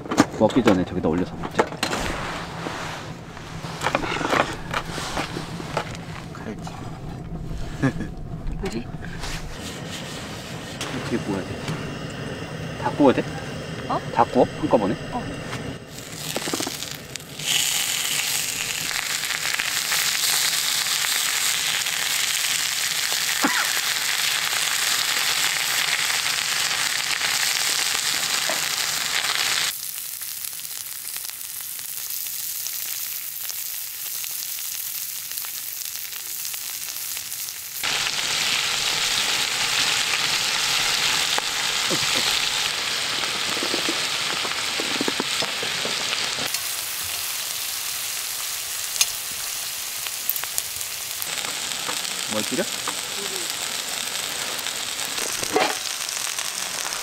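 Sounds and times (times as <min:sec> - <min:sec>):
meat sizzling on griddle: 0:15.8 - 0:57.0.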